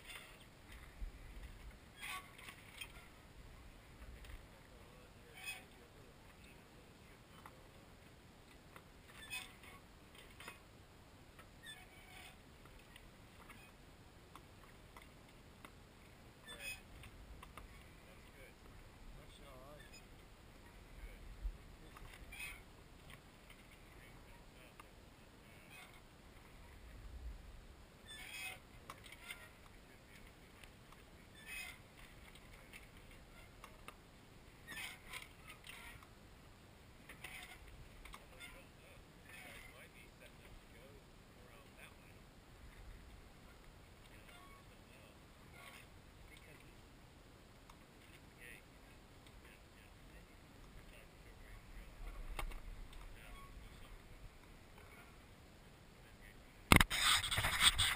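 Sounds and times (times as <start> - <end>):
sailboat creaks and clicks: 0.0 - 3.1, 8.4 - 10.6, 16.4 - 20.3, 21.7 - 24.9, 28.0 - 34.0, 34.6 - 36.1, 37.0 - 39.9, 51.6 - 54.9, 56.7 - 57.9
faint steady hiss: 0.0 - 57.9.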